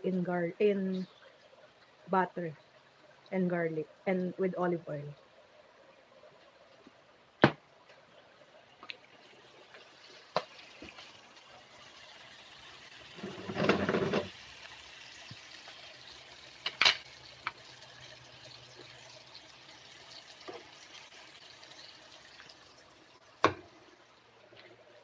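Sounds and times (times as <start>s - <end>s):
meat sizzling in hot oil: 8.9s - 24.2s.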